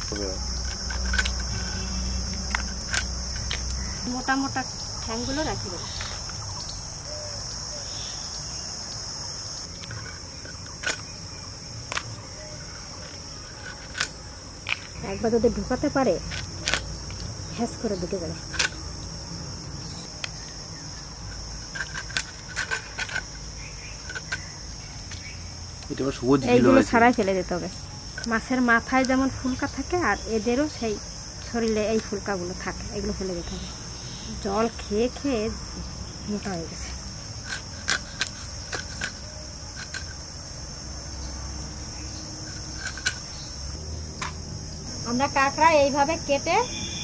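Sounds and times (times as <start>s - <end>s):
insects chirring: 0.0s - 47.0s
crab shell cracking: 16.2s - 17.3s, 18.4s - 19.2s, 37.5s - 40.2s
gills being scraped: 37.4s - 40.3s.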